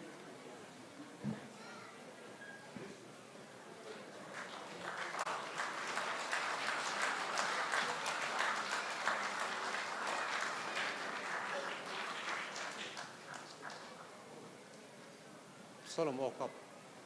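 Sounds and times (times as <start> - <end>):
audience applauding: 4.2 - 14.2.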